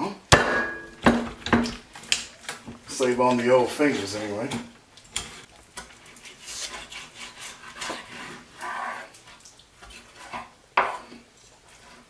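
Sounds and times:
knife sawing through ribs on board: 6.0 - 9.2.

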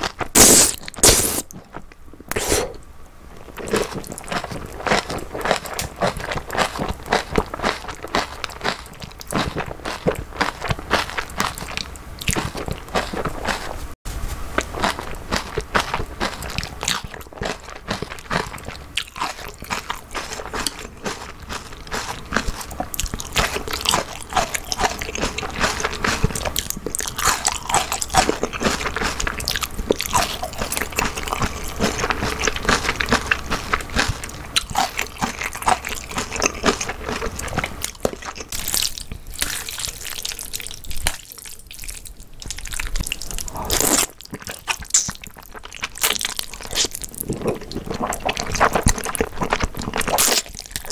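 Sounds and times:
chewing noodles: 3.4 - 13.9, 14.5 - 50.9
wet smacking mouth sounds: 42.4 - 45.4.

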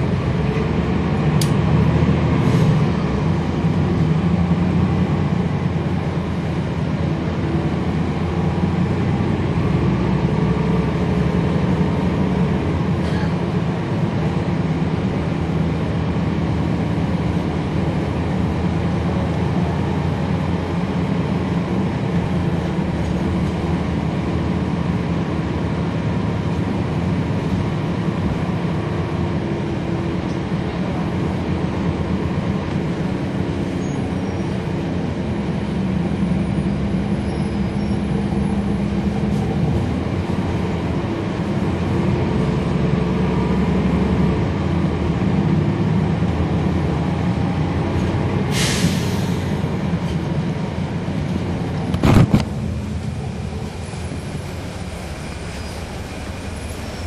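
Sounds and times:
bus engine and road drone: 0.0 - 57.0.

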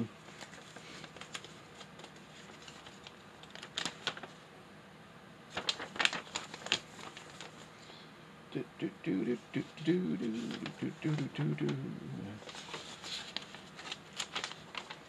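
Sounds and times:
paper crinkling and clicks: 0.3 - 4.4, 5.5 - 7.7, 10.2 - 11.8, 12.4 - 15.0.

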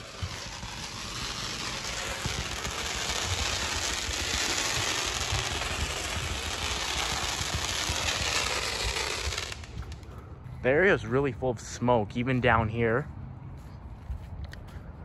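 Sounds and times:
distant fireworks crackling: 0.0 - 12.6.

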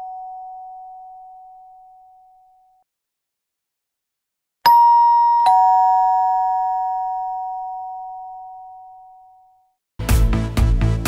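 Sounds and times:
two-tone doorbell chime: 0.0 - 2.8, 4.7 - 9.8.

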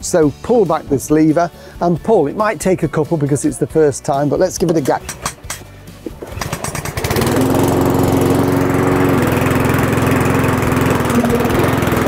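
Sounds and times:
lawn mower engine starting: 4.6 - 12.0.

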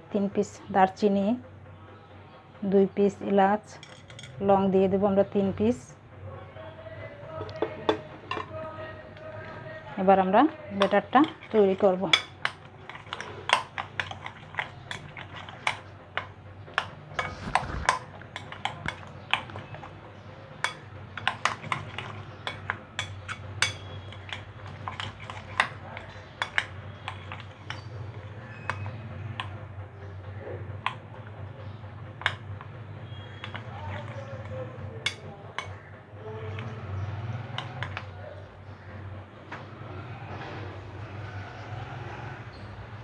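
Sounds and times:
low steady hum: 0.0 - 43.0
metal spoon scraping a plate: 10.8 - 29.6, 32.2 - 35.8.

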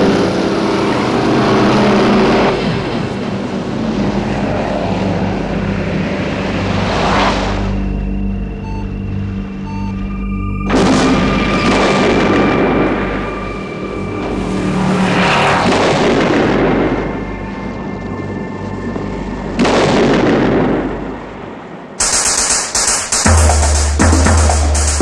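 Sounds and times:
heavy explosions: 10.7 - 17.7, 19.6 - 25.0.

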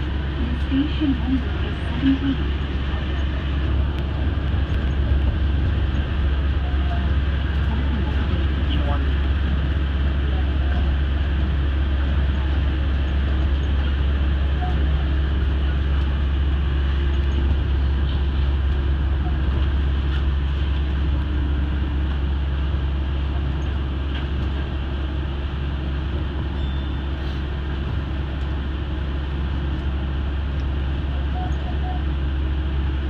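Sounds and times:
monorail cabin rumble: 0.0 - 33.0.

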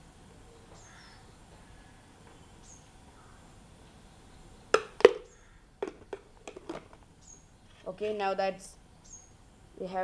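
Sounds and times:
faint bird chirps: 8.9 - 9.6.

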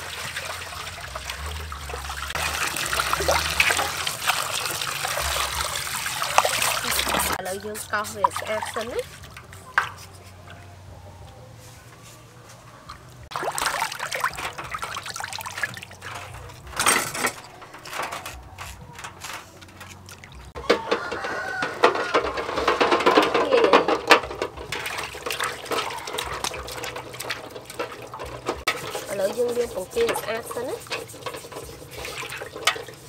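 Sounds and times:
water splashing in metal basin: 0.0 - 9.9, 13.2 - 33.0.

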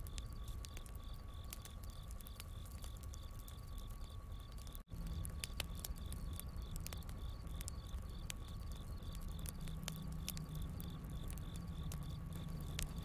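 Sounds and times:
campfire crackling and popping: 0.0 - 13.0
crickets chirping: 0.0 - 13.0.

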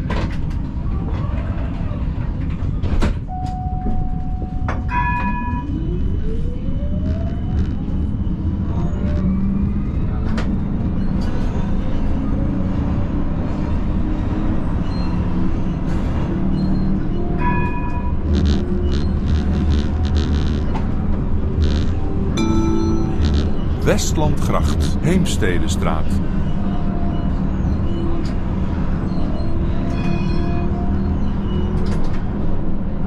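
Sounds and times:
tram motor whine: 3.3 - 25.0
sharp clicks: 18.3 - 20.8
short electronic beeps: 18.3 - 20.8, 21.6 - 26.2.

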